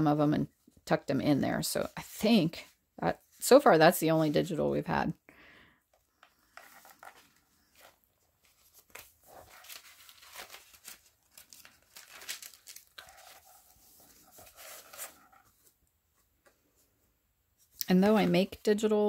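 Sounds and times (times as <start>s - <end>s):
paper rustling and crinkling: 6.1s - 16.3s.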